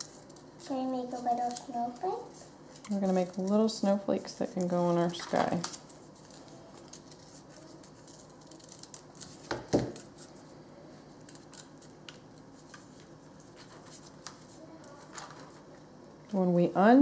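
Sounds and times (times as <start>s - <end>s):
scissors snipping paper: 4.6s - 10.3s.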